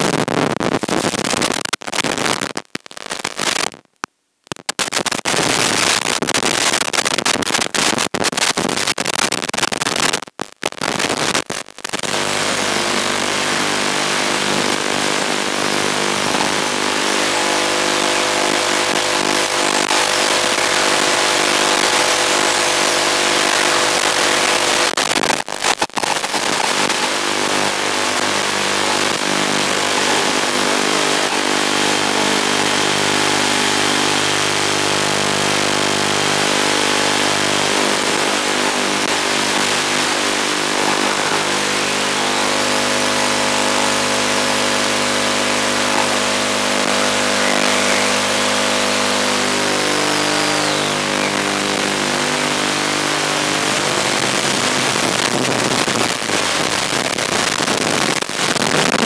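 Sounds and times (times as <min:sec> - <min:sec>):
steady buzz: 0:11.9 - 0:59.0.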